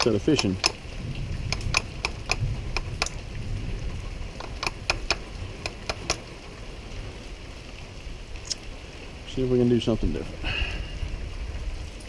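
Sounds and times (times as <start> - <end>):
ratchet wrench clicking: 4.4 - 6.2.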